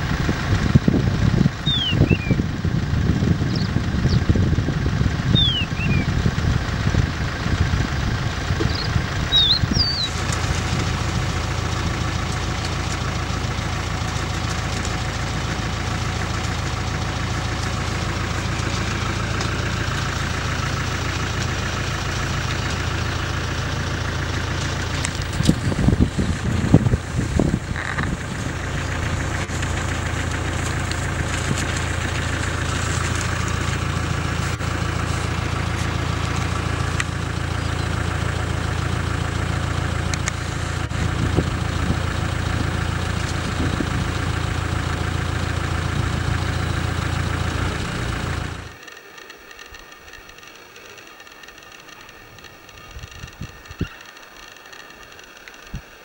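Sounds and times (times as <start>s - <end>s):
vehicle engine running: 0.0s - 56.0s
bird chirps: 1.6s - 2.4s, 3.5s - 4.3s, 5.3s - 6.2s, 8.6s - 10.2s.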